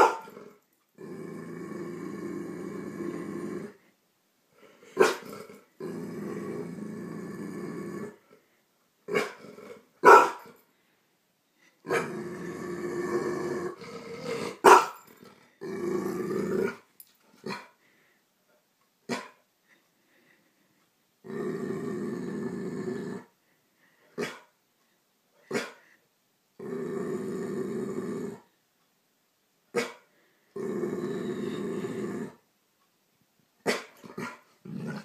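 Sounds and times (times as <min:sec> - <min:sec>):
dog barking: 0:00.0 - 0:00.3, 0:05.0 - 0:05.2, 0:10.0 - 0:10.5, 0:14.6 - 0:15.0, 0:25.5 - 0:25.8
dog growling: 0:00.0 - 0:03.9, 0:04.6 - 0:08.4, 0:09.1 - 0:10.5, 0:11.8 - 0:17.7, 0:21.2 - 0:23.3, 0:26.6 - 0:28.5, 0:30.6 - 0:32.4, 0:33.7 - 0:35.0.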